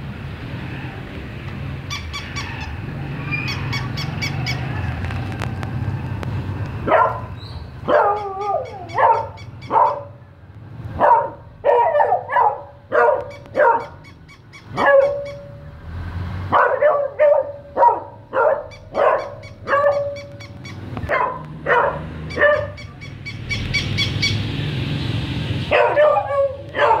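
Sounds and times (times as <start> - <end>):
dog barking: 6.8 - 10.2, 11.0 - 14.0, 14.7 - 15.5, 16.5 - 20.4, 21.1 - 22.9, 25.7 - 27.0.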